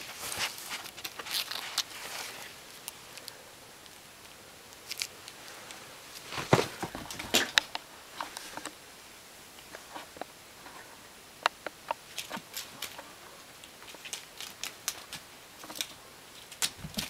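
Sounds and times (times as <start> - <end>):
cat playing with taps and rustles: 11.5 - 17.0.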